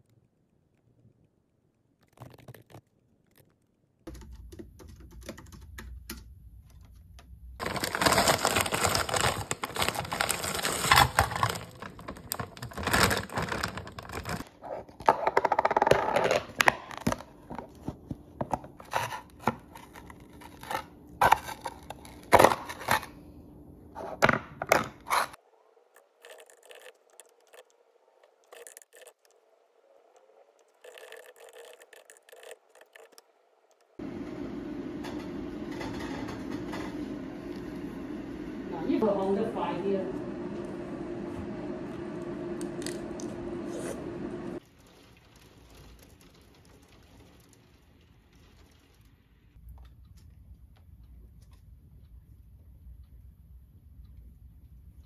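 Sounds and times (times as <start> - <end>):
typing on computer keyboard: 4.0 - 6.3
plastic containers rustling and clattering: 7.6 - 23.2
faint steady hum: 16.9 - 32.4.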